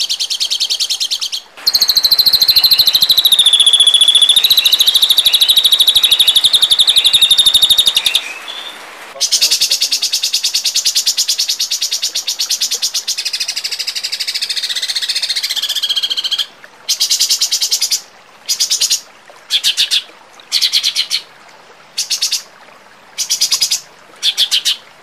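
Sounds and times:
songbird trilling: 0:00.0 - 0:17.2.

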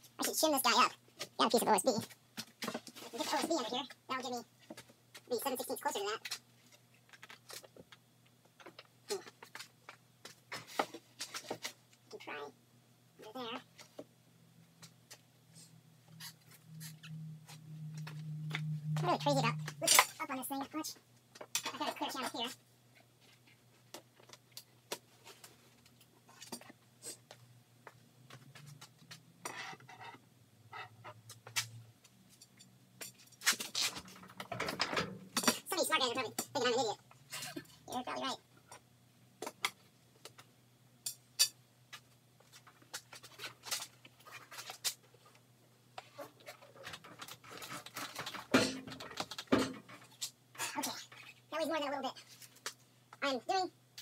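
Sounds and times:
low steady hum: 0:12.0 - 0:33.4.

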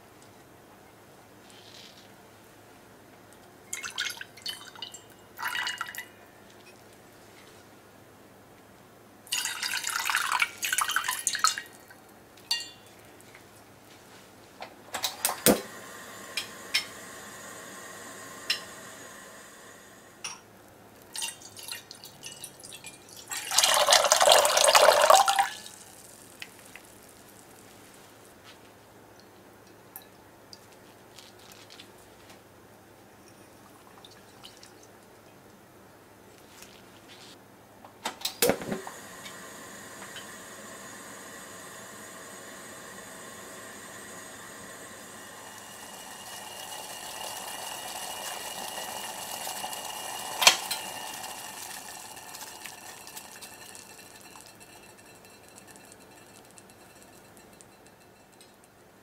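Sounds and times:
liquid pouring into saucepan: 0:03.7 - 0:06.1, 0:09.3 - 0:11.8, 0:21.0 - 0:27.5, 0:39.0 - 0:58.5.

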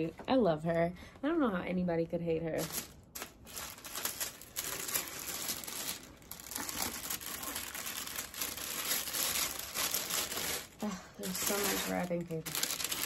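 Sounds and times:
wrapping paper rustling: 0:02.5 - 0:13.0.

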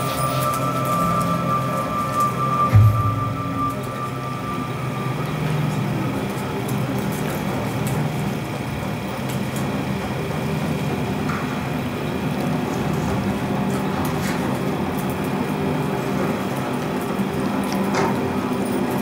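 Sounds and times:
low rumbling drone over speakers: 0:00.0 - 0:09.2.

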